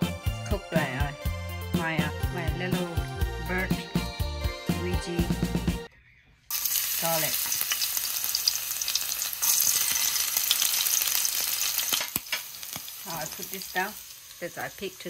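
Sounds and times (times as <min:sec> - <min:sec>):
greens sizzling in a pan: 0:06.5 - 0:15.0.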